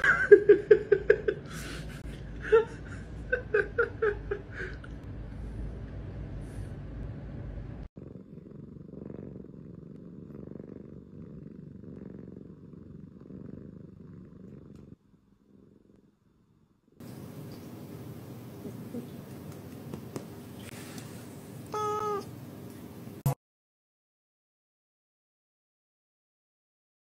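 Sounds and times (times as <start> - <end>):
cat purring: 7.9 - 20.6.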